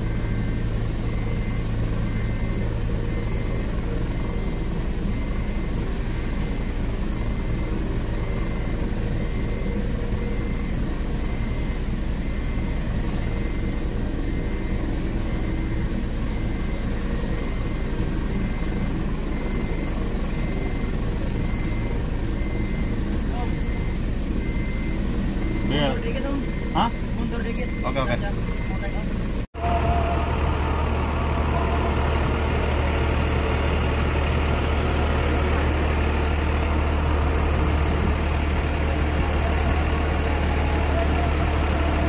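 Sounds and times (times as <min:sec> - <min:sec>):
high beep: 0:00.0 - 0:29.1.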